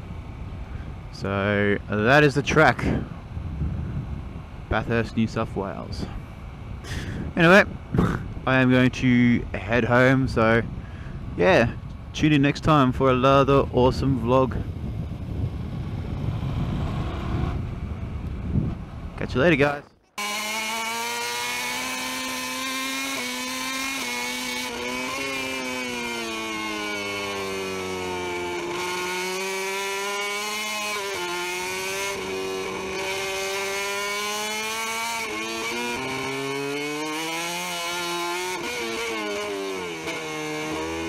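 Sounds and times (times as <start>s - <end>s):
motorcycle engine at high revs: 15.3s - 17.8s, 20.1s - 41.0s.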